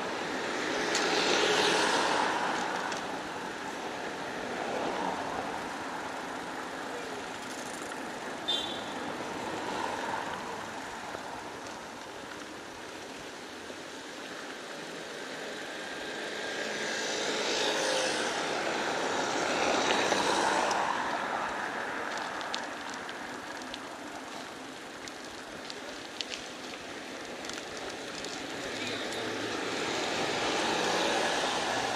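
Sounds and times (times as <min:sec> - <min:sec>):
street traffic: 0:00.0 - 0:31.9
faint clicks: 0:22.1 - 0:29.6.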